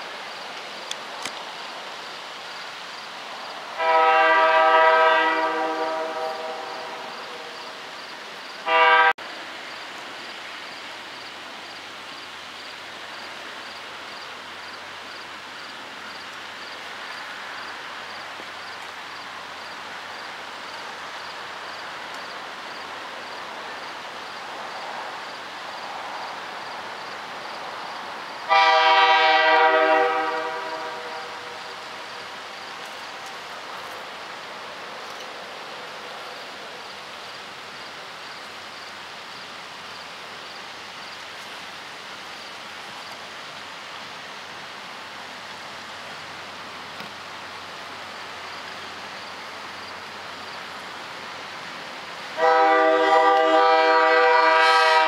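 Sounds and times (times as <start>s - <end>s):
steady background noise: 0.0s - 55.0s
locomotive air horn blasts: 3.8s - 7.2s, 8.6s - 9.2s, 28.5s - 31.8s, 52.4s - 55.0s.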